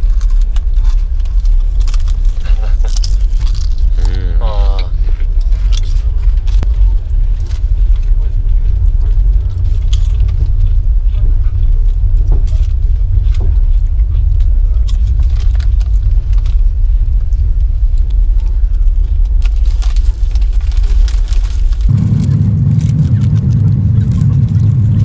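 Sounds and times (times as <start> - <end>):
crunching of crisps: 0.0 - 25.0
train carriage rumbling on rails: 4.6 - 25.0
chip bag crinkling: 19.2 - 24.6.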